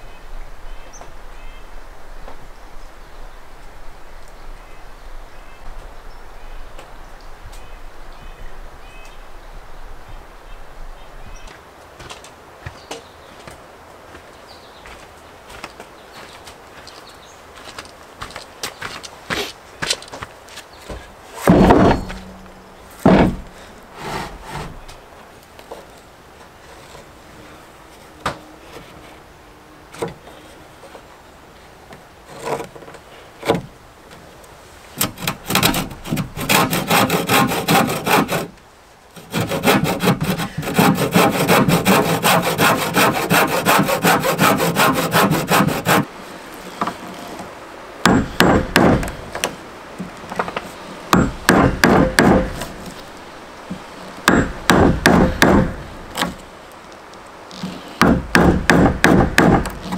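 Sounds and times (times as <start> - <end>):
wood knocking on wood: 20.9 - 22.4, 23.0 - 23.5, 48.1 - 49.6, 50.3 - 52.8, 53.7 - 56.4, 58.0 - 59.9
handsaw cutting log: 24.0 - 24.8, 35.0 - 38.6, 39.2 - 46.1
hammer striking chisel: 48.1 - 49.1, 51.2 - 52.6, 54.3 - 55.8, 58.0 - 59.8.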